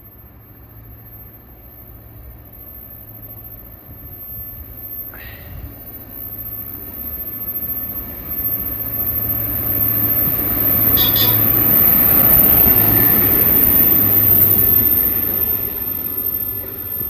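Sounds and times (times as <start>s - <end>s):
wheels rumbling on rails: 0.0s - 17.0s
engine humming: 0.1s - 17.0s
brief shrill tone: 7.2s - 17.0s.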